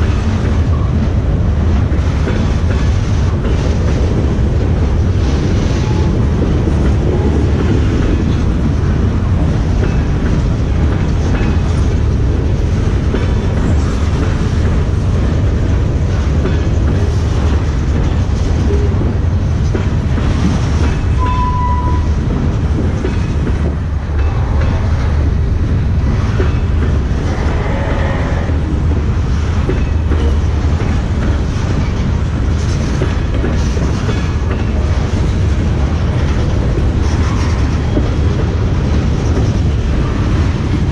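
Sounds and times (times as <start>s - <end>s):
freight train rumbling past: 0.0s - 40.9s
brief high tone: 21.2s - 22.1s.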